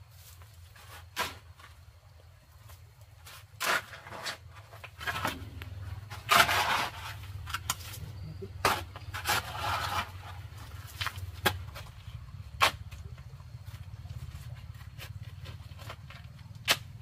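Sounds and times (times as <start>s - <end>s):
shovel scraping through gravel: 3.2s - 8.0s, 8.6s - 11.2s.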